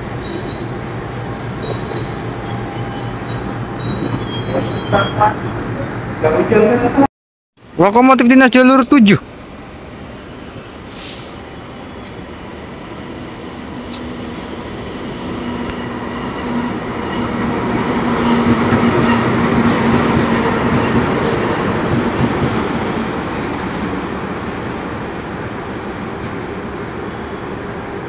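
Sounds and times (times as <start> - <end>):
train wheel noise: 10.9 - 28.0.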